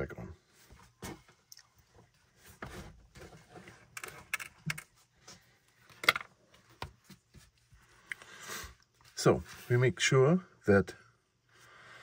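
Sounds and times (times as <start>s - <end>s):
small plastic parts clicking: 4.0s - 4.9s.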